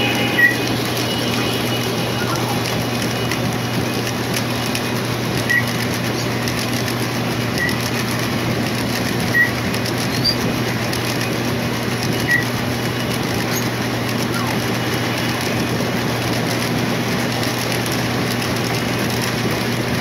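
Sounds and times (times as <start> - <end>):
short high squeaks: 0.0 - 3.4, 5.4 - 6.3, 7.5 - 8.0, 9.3 - 10.5, 12.2 - 14.6
model train wheels running: 0.0 - 20.0.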